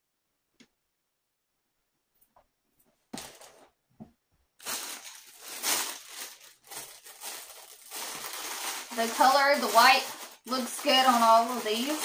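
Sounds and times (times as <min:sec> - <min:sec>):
plastic packaging crinkling: 0:04.6 - 0:12.0.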